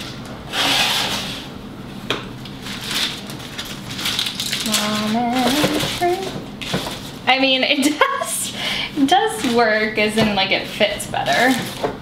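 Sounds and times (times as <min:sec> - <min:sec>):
wet paper crinkling: 0:02.6 - 0:07.2.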